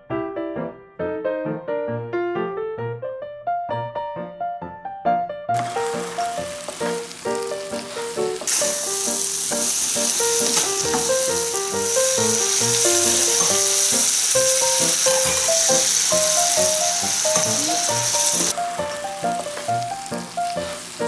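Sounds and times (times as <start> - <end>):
food sizzling in frying pan: 5.6 - 21.0
plucked keyboard music: 5.6 - 21.0.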